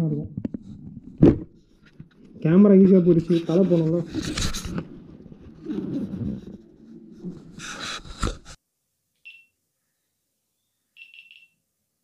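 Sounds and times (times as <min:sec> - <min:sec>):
camera rubbing and knocking: 0:00.4 - 0:08.6
high electronic beep: 0:11.0 - 0:11.6.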